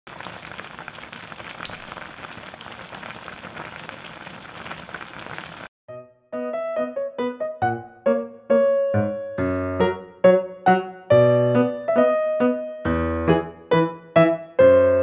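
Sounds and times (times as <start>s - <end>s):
stew bubbling at full boil: 0.1s - 5.7s
piano notes: 5.9s - 15.0s.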